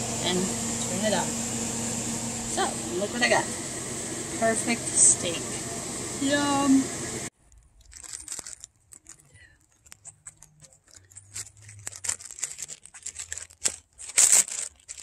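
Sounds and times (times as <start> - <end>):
crinkling and rustling: 7.4 - 15.0.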